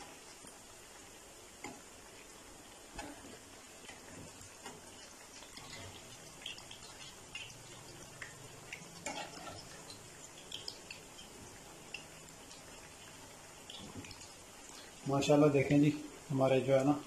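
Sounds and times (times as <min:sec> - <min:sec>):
frying sizzle with pops: 0:00.0 - 0:17.0
spatula tapping and scraping pan: 0:09.0 - 0:11.0.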